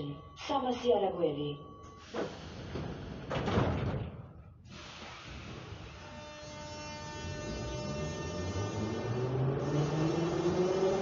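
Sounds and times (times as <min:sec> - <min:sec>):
metro train rushing: 0:05.4 - 0:11.0.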